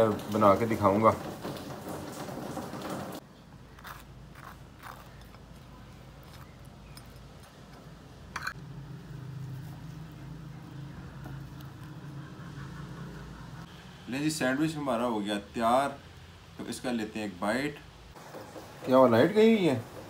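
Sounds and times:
spoon scraping toast and plate: 3.7 - 8.6.

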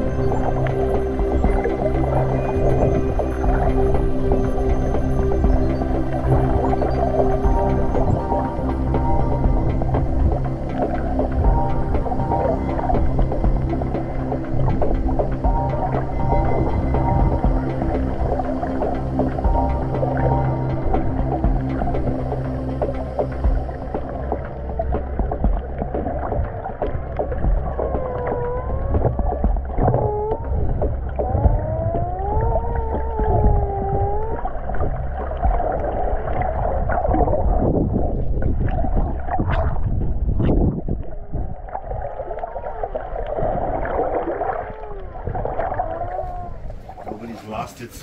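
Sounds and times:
muffled low underwater rumble: 0.0 - 48.0.

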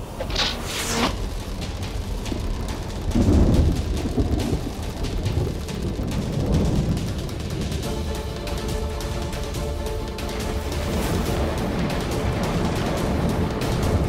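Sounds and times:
whoosh: 0.0 - 4.7
rain-like crackle: 0.0 - 14.0
deep thunder rumble: 1.1 - 14.0.

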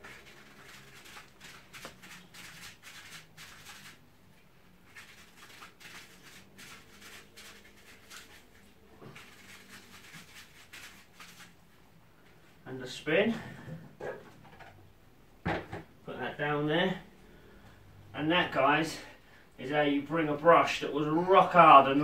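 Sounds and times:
brush scrubbing in soapy water: 0.0 - 4.1, 4.7 - 11.7.

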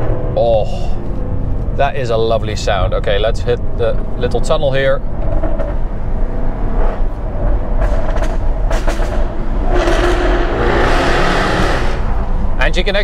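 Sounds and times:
exhaust crackles: 7.5 - 12.6
exhaust rush echoing: 8.1 - 12.6.

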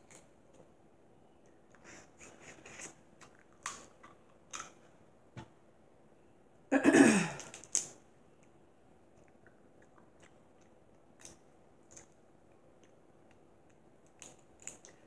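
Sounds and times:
crab shells clicking and crackling: 7.4 - 8.0, 12.8 - 15.0.

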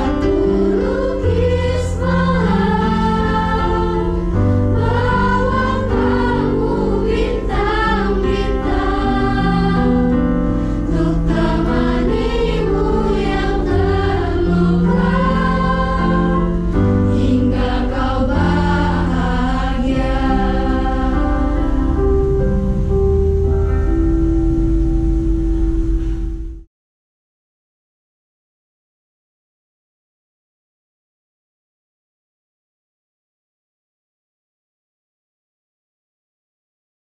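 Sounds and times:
choir singing in harmony: 0.0 - 24.1
electric keyboard chords: 0.0 - 26.7.

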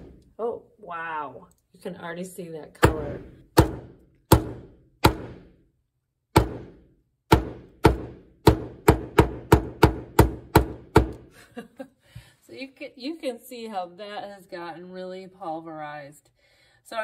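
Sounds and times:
hammer knocking on wooden board: 2.8 - 5.5, 6.4 - 11.2.

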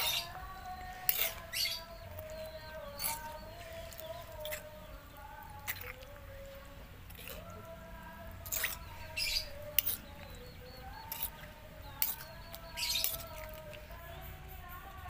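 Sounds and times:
metal spoon scraping stone mortar: 0.0 - 4.8, 7.1 - 7.5, 8.3 - 14.0.

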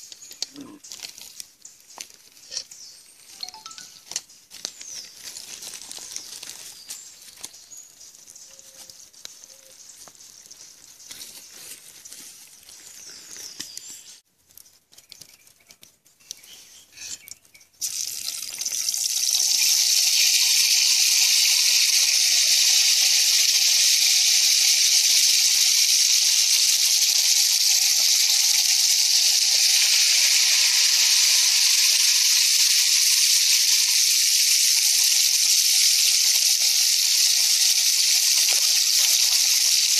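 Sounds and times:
faint clicks and rustles: 4.0 - 17.6
meat sizzling in hot oil: 17.8 - 39.9.

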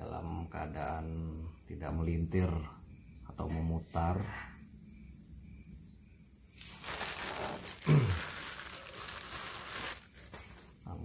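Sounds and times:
cricket trill: 0.0 - 11.0
plastic packaging crinkling: 6.6 - 10.7.

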